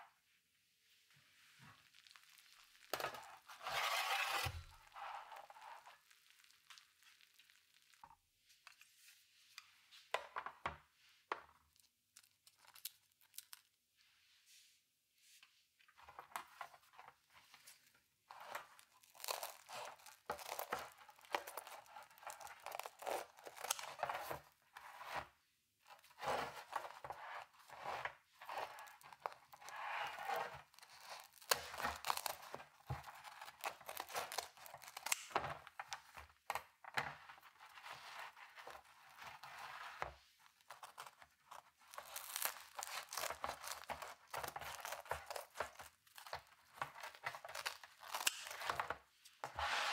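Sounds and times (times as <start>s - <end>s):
scissors cutting crisp pizza crust: 18.4s - 24.3s, 28.5s - 35.4s, 40.7s - 48.9s.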